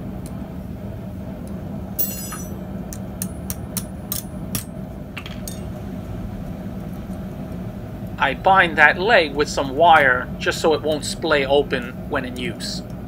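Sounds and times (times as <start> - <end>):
steady low hum: 0.0 - 13.0
ringing metal clink: 2.0 - 2.6.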